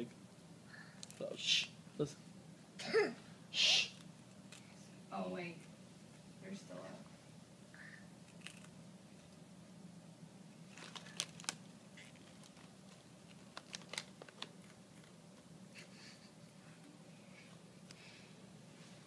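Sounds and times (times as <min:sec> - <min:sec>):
animal crunching snacks: 0:08.2 - 0:08.8, 0:10.6 - 0:15.2
foil bag crinkling: 0:10.6 - 0:15.1.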